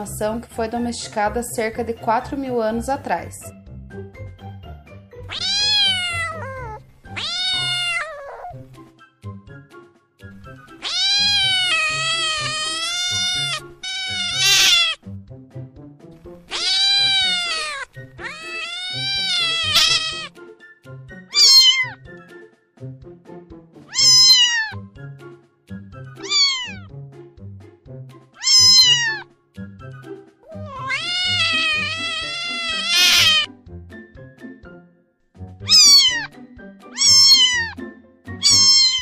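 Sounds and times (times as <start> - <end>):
soft background music: 0.0 - 39.0
cat meowing: 5.2 - 8.7, 10.7 - 15.0, 16.4 - 20.4, 21.2 - 22.0, 23.9 - 24.8, 26.2 - 26.9, 28.4 - 29.3, 30.4 - 33.5, 35.6 - 37.8, 38.4 - 39.0.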